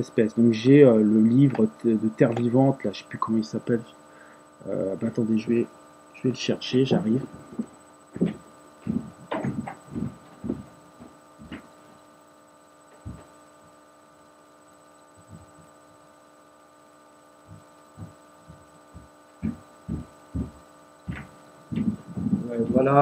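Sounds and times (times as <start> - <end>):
electrical hum: 0.0 - 23.0
footsteps: 7.2 - 12.0, 12.9 - 13.4, 15.2 - 15.7, 17.5 - 23.0
knocks: 7.6 - 10.6.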